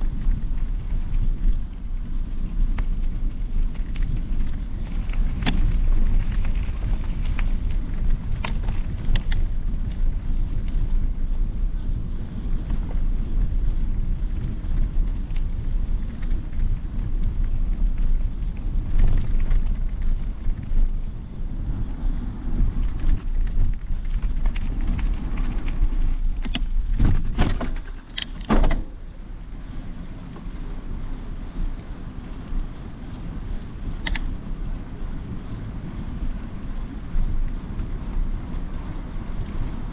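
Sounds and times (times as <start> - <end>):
wind buffeting microphone: 0.0 - 39.9
sharp knocks and rattles: 22.3 - 29.0.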